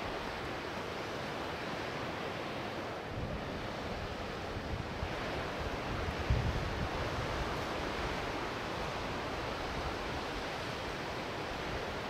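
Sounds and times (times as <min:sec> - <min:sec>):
wind gusting on microphone: 0:03.0 - 0:12.0.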